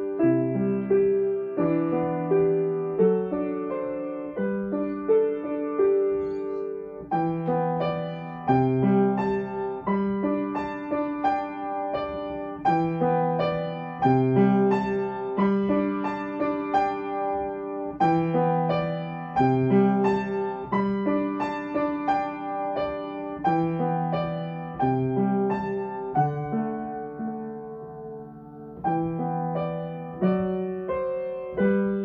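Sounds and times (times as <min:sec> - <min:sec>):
gentle piano piece: 0:00.0 - 0:32.0.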